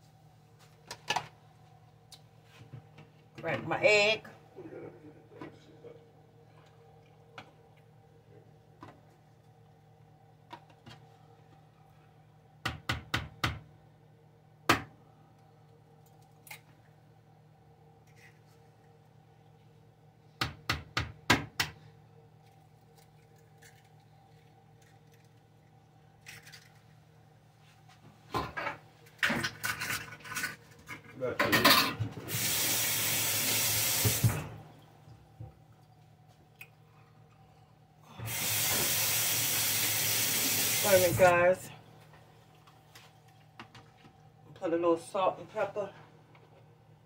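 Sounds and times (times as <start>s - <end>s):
kitchen tap running: 32.2s - 34.6s, 38.2s - 41.3s.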